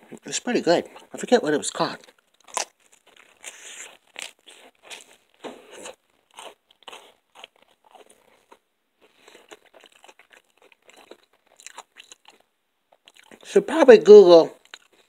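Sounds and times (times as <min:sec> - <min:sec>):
person chewing crunchy food: 0:02.0 - 0:13.5, 0:14.6 - 0:15.0.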